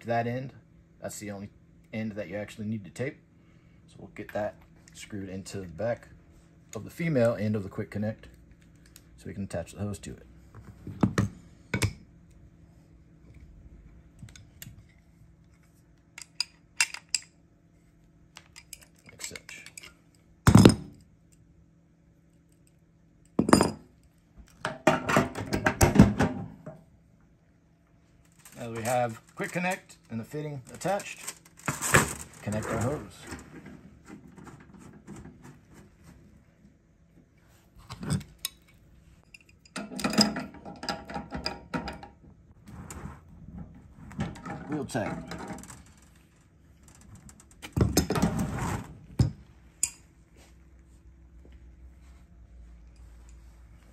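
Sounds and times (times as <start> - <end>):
wrenches clinking on metal fittings: 39.2 - 42.1.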